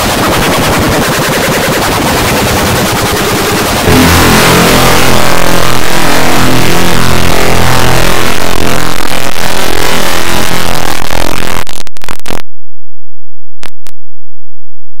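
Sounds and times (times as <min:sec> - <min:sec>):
harsh distorted noise: 0:00.0 - 0:12.4
low hum: 0:03.1 - 0:12.4.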